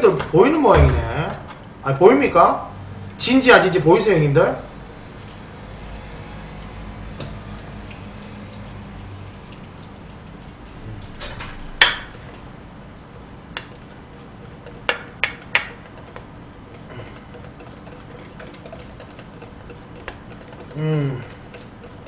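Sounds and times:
whisk beating batter: 13.5s - 22.0s
whisk clinking against bowl: 17.2s - 22.0s.

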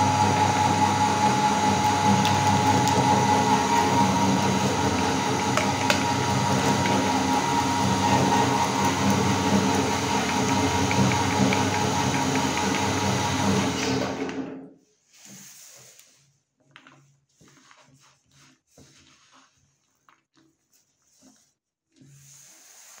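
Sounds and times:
electric meat grinder running: 0.0s - 14.5s.

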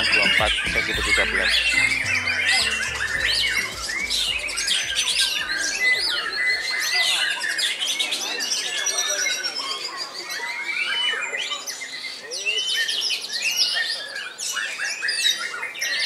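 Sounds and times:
other birds singing: 0.0s - 16.0s
songbird whistling and trilling: 1.2s - 7.8s.

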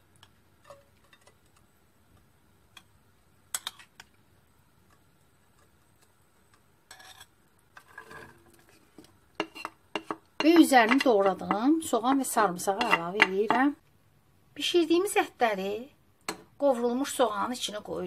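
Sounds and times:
onion sliding into pan: 4.9s - 13.6s
metal spoon tapping metal: 9.4s - 13.7s.

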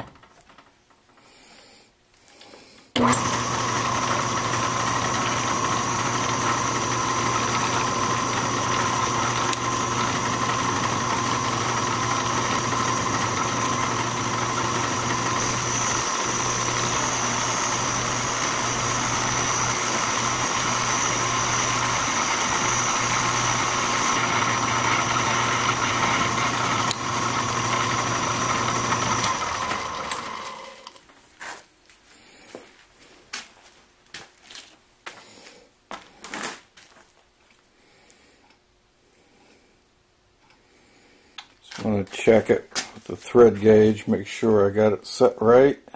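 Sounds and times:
metal lathe running: 3.0s - 30.9s.

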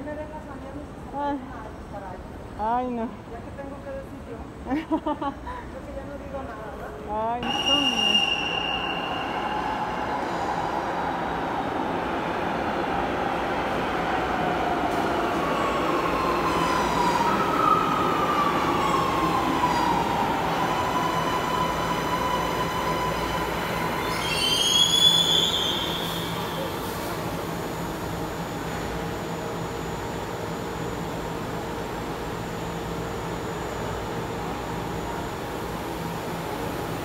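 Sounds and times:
high brake squeal: 7.4s - 10.6s, 20.8s - 27.0s
train whine falling in pitch: 7.4s - 11.0s.

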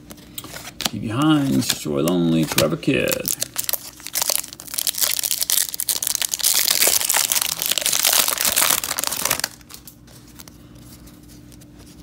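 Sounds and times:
foil wrapper crinkling: 0.6s - 10.6s
wrapper tearing open: 2.4s - 10.0s.

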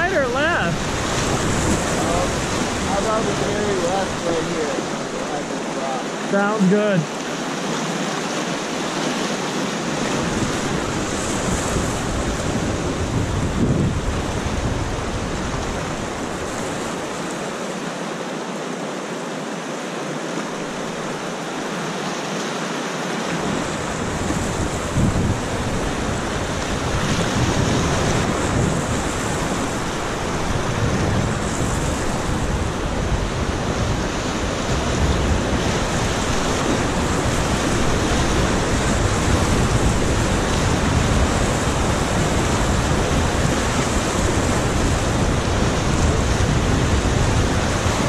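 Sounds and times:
wind buffeting microphone: 0.0s - 5.6s, 9.8s - 17.1s, 23.3s - 48.0s
whitewater rapid rushing: 0.0s - 48.0s.

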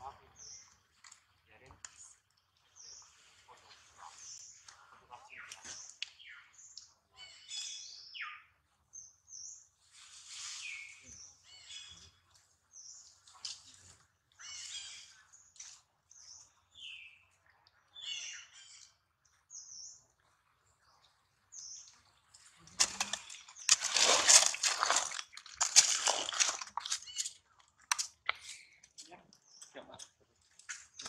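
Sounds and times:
small birds chirping: 0.0s - 31.0s
rustling of dry leaves: 9.8s - 11.9s, 22.4s - 28.9s.

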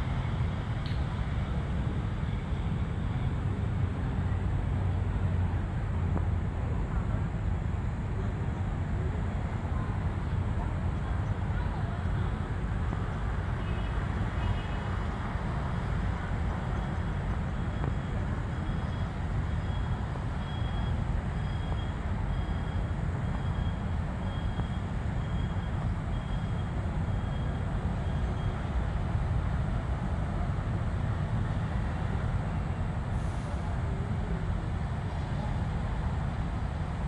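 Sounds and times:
low outdoor rumble: 0.0s - 37.0s.

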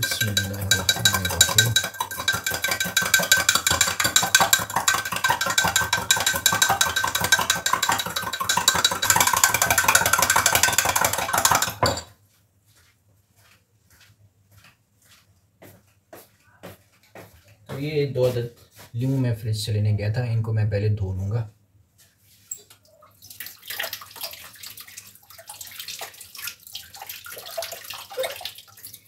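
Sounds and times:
spoon and ice clinking in glass: 0.0s - 12.1s
faint footsteps: 12.0s - 19.4s.

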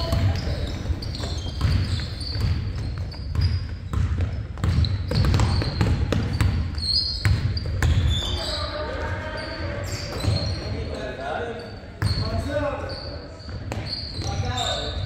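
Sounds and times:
basketball bouncing on court: 0.0s - 8.3s
sneakers squeaking: 0.0s - 15.0s.

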